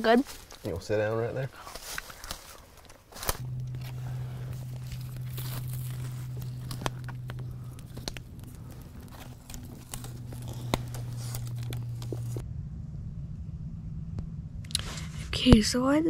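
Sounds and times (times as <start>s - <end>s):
campfire crackling: 1.8s - 12.4s
fire pops: 3.2s - 12.4s
steady low hum: 3.4s - 16.0s.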